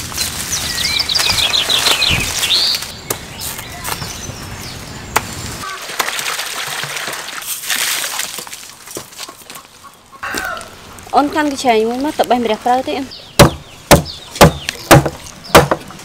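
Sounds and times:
birds singing: 0:00.0 - 0:05.8, 0:12.7 - 0:15.9
water splashing in metal basin: 0:05.6 - 0:08.6.

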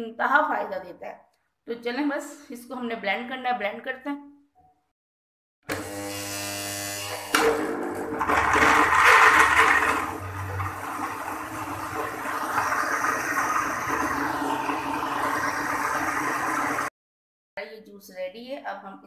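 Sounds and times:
blender chopping fruit: 0:05.7 - 0:16.9.

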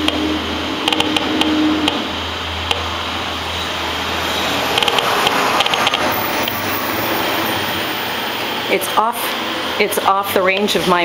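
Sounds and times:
static clicks: 0:00.8 - 0:02.0, 0:04.7 - 0:06.6.

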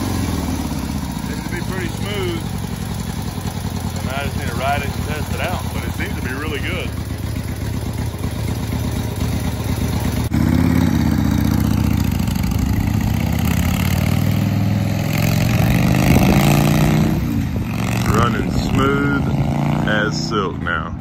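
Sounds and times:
motorcycle engine idling and accelerating: 0:00.0 - 0:21.0
man talking: 0:01.2 - 0:02.5, 0:04.0 - 0:07.0, 0:18.0 - 0:21.0.

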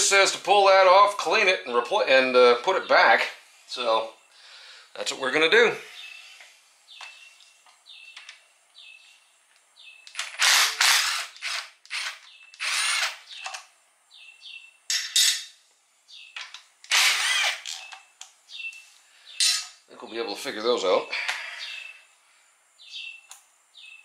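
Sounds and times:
cordless ratchet whirring: 0:10.2 - 0:13.2, 0:16.9 - 0:17.8.

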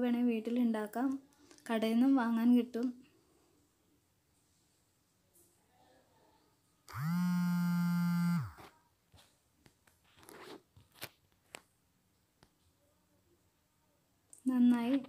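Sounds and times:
loud steady buzz: 0:06.9 - 0:08.6.

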